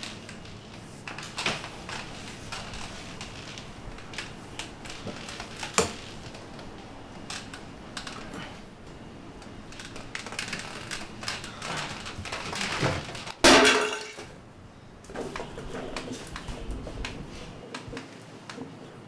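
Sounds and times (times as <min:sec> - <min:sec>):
clicks and knocks of things handled: 0:09.4 - 0:14.3
metal tin crashing on tiled floor: 0:13.4 - 0:14.3.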